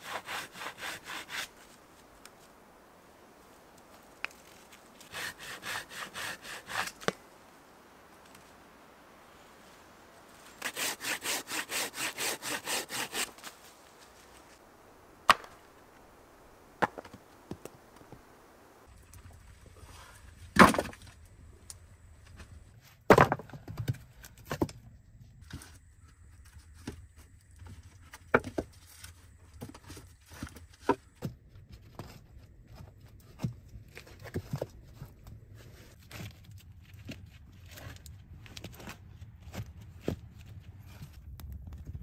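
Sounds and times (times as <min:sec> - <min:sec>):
wooden knocks of logs stacking: 0:15.2 - 0:15.7, 0:16.7 - 0:18.3, 0:20.6 - 0:21.0, 0:23.1 - 0:24.8, 0:28.2 - 0:28.7
heavy log thud on earth floor: 0:23.1 - 0:23.9.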